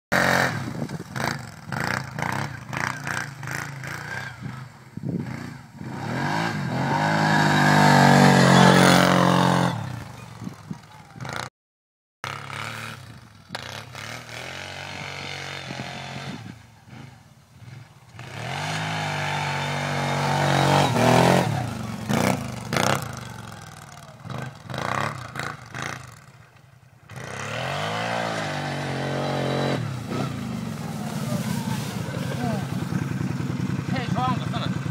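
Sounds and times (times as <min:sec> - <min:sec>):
atv engine revving: 0:00.1 - 0:11.5, 0:12.2 - 0:34.9.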